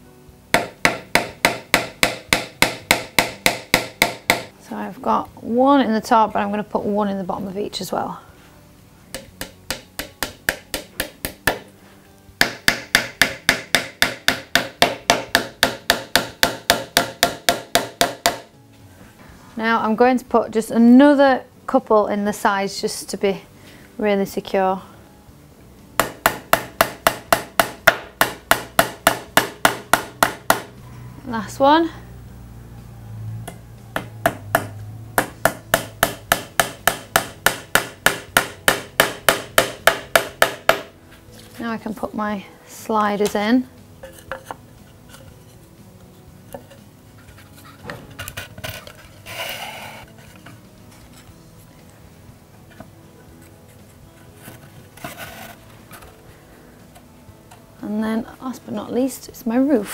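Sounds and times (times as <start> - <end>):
hammer tapping pins into wood: 0.6 - 4.5, 9.1 - 11.7, 12.4 - 18.5, 26.0 - 30.7, 34.0 - 40.9
hammer tapping pin into wood: 9.1 - 11.6, 12.4 - 18.5.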